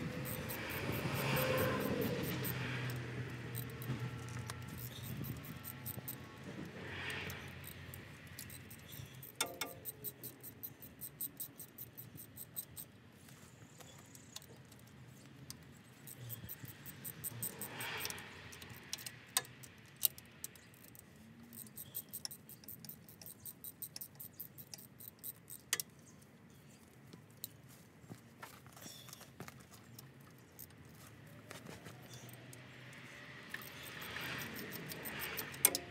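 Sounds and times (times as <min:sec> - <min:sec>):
metal clinks: 0:00.0 - 0:12.9
socket ratchet clicking: 0:00.0 - 0:13.0, 0:14.2 - 0:25.9, 0:32.2 - 0:35.9.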